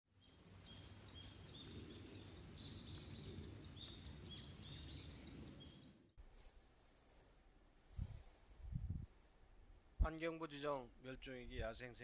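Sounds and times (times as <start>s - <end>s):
bird chirping: 0.1s - 6.9s.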